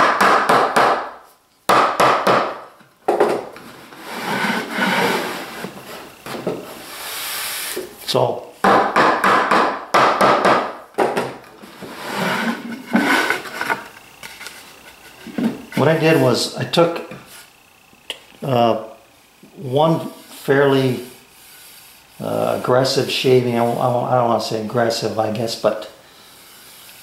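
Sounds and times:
wood scraping on wood: 0:03.4 - 0:08.0, 0:11.5 - 0:16.4, 0:19.9 - 0:24.4.

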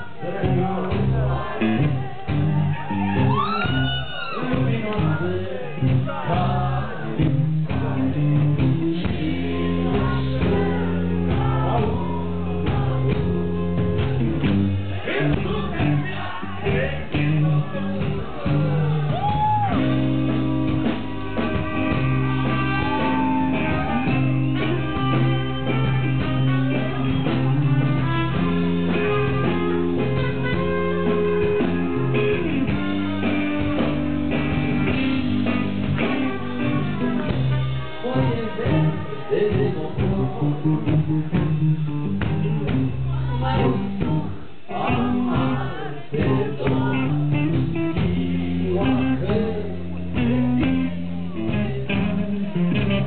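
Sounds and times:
man singing: 0:00.0 - 0:13.3, 0:15.0 - 0:19.3, 0:36.0 - 0:41.6, 0:43.1 - 0:52.6
bass guitar: 0:00.0 - 0:53.0
drums: 0:00.0 - 0:53.0
electric guitar: 0:00.0 - 0:53.0.

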